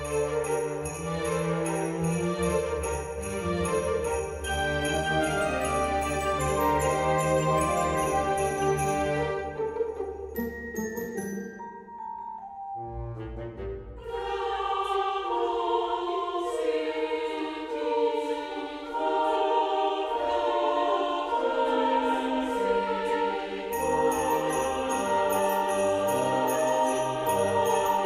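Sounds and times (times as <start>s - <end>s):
jingle bells shaken: 0.0s - 12.7s, 23.7s - 28.0s
christmas music sustained notes: 0.0s - 28.0s.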